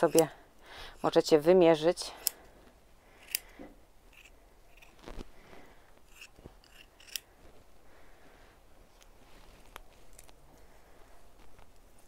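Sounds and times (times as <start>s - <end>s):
scissors snipping: 6.1s - 7.3s.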